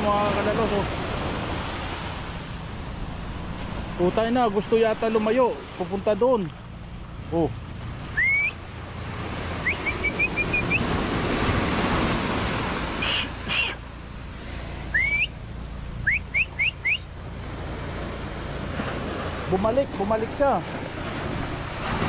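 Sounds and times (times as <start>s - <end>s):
waves washing on sand and rocks: 0.0s - 22.0s
person whistling: 8.1s - 8.6s, 9.6s - 10.9s, 13.0s - 13.8s, 14.9s - 15.4s, 16.0s - 17.0s.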